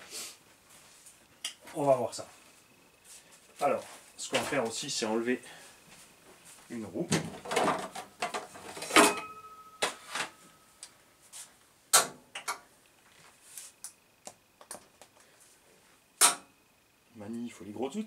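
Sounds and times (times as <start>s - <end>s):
tools clattering on workbench: 7.1s - 10.4s.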